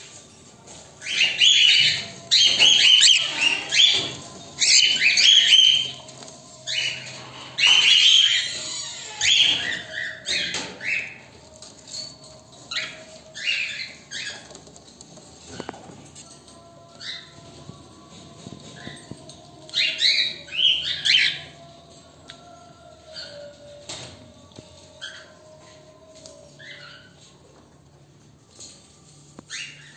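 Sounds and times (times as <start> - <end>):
cockatiels chirping harshly: 1.0 - 6.1, 6.7 - 11.4, 12.7 - 14.5.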